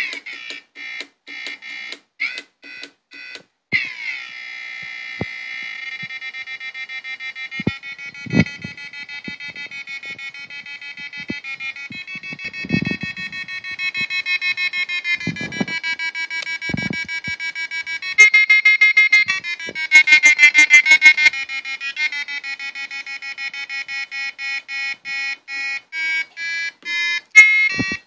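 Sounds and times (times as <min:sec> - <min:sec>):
pulsing electronic tone: 0:03.8 - 0:22.1.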